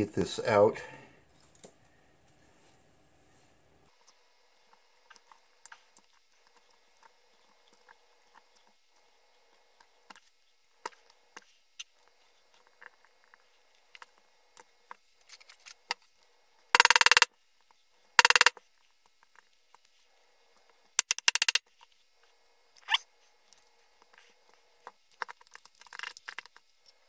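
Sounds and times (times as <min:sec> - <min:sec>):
rapid rattle of clicks: 0:21.0 - 0:21.6.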